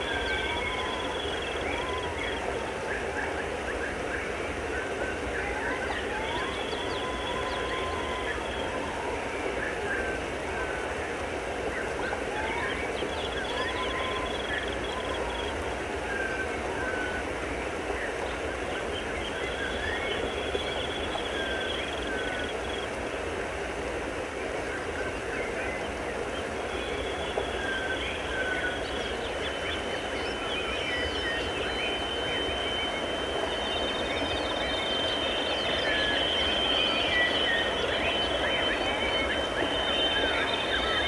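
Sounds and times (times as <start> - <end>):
electronic noise drone: 26.9 - 41.0
thin high steady tone: 27.5 - 41.0
electronic chirping glides: 27.6 - 41.0.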